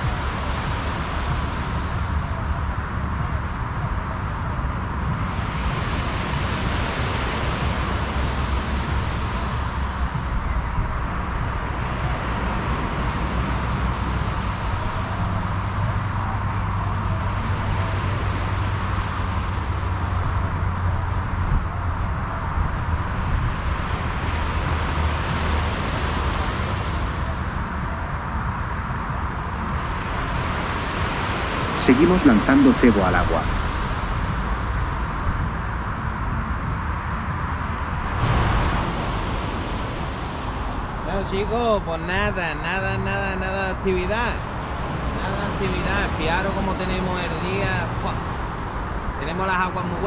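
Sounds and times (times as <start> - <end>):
steady wind: 0.0 - 50.0
surf washing on a beach: 0.0 - 50.0.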